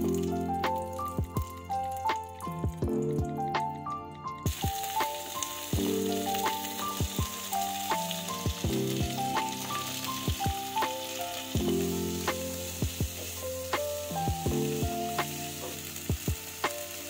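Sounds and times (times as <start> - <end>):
instrumental background music: 0.0 - 17.0
vegetables sizzling in oil: 4.5 - 17.0.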